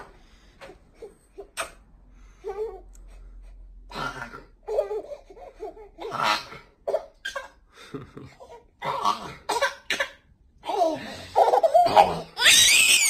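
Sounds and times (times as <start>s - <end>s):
breathy playful vocal sounds: 10.6s - 12.4s.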